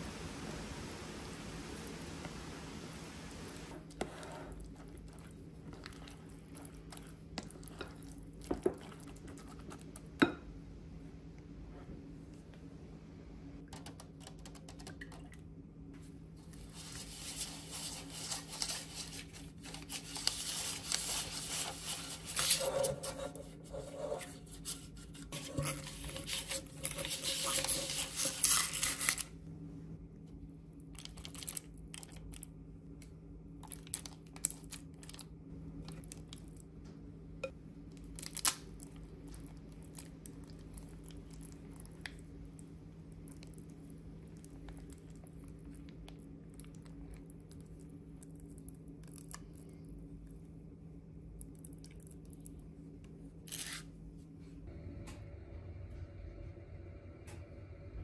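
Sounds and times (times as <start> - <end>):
scraping and rustling in a bowl: 3.7 - 10.1, 16.0 - 29.3.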